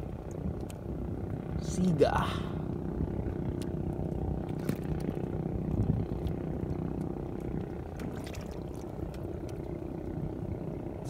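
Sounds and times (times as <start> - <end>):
water trickling and splashing: 7.7 - 9.8.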